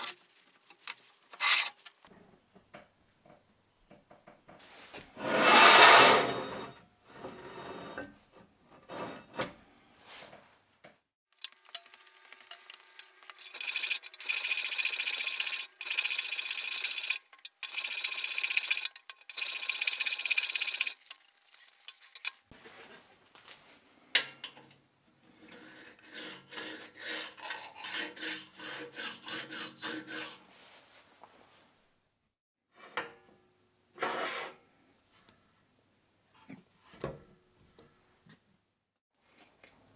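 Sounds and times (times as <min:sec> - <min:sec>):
hand file scraping steel: 0:01.4 - 0:01.8, 0:05.2 - 0:06.6, 0:25.3 - 0:30.6.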